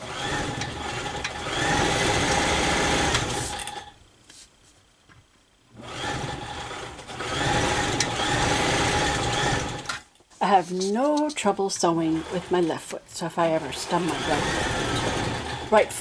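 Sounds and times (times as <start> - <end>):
sewing machine motor running: 0.0 - 3.9, 5.8 - 10.0, 12.0 - 12.8, 13.4 - 16.0.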